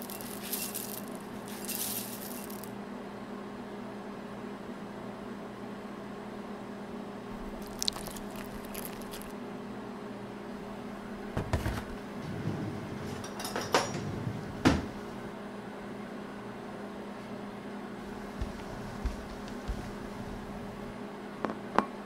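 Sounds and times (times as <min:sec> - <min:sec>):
cereal poured into bowl: 0:00.0 - 0:02.7, 0:07.4 - 0:09.3
low electrical hum: 0:00.0 - 0:22.0
milk pouring: 0:07.4 - 0:09.3.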